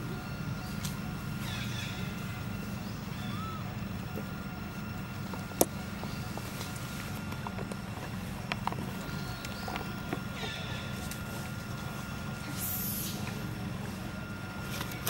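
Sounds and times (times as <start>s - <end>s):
low rumble of background ambience: 0.0s - 15.0s
faint chirps: 0.2s - 5.1s.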